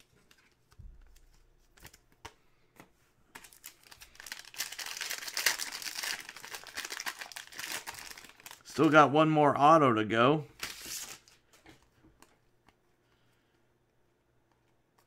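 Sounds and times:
foil wrapper tearing and crinkling: 3.4 - 8.6.

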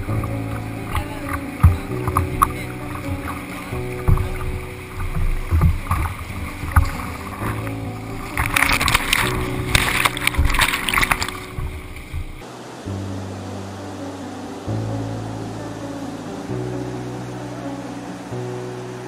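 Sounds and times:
low thumps: 0.0 - 12.4
background music with low tones: 0.0 - 19.0
river water rushing and splashing: 0.0 - 19.0.

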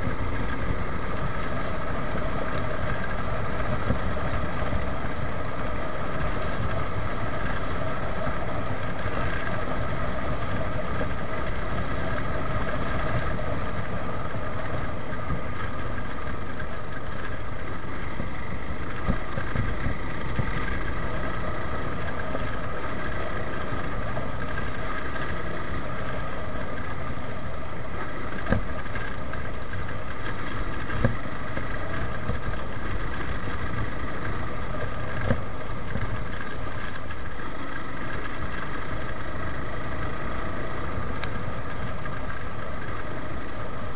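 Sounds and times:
motorcycle engine running: 0.0 - 43.9.

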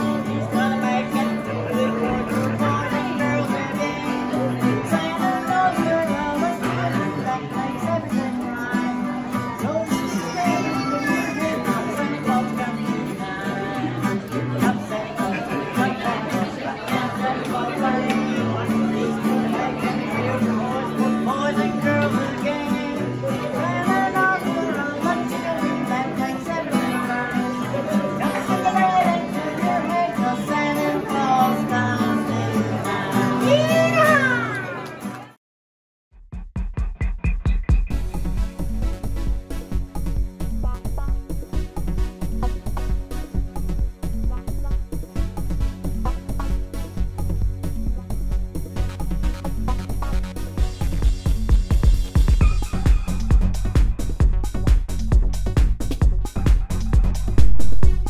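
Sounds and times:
man singing: 0.0 - 34.6, 40.3 - 48.2
acoustic guitar strumming: 0.0 - 35.3, 36.7 - 58.0.

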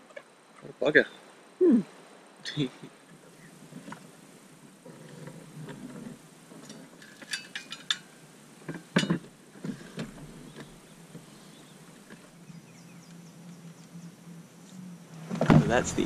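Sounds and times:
light metallic clinks: 6.6 - 8.1.

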